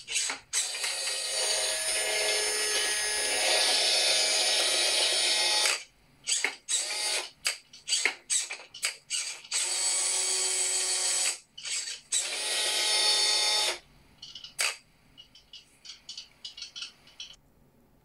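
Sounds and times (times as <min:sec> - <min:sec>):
toy electric motor whirring: 0:00.0 - 0:13.8.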